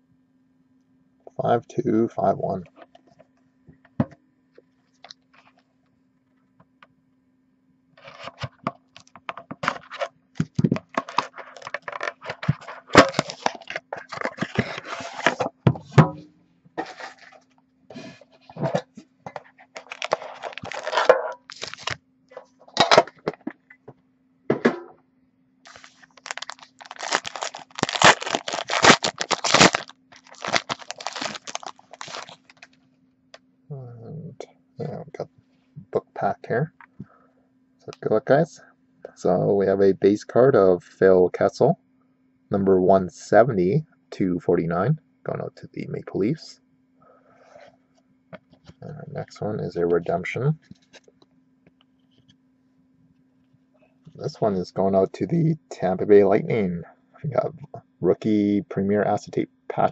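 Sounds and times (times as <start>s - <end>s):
faint electrical hum: 0.0s - 59.9s
plastic wrapping crinkling and tearing: 9.0s - 15.4s, 19.8s - 22.0s, 25.7s - 32.8s.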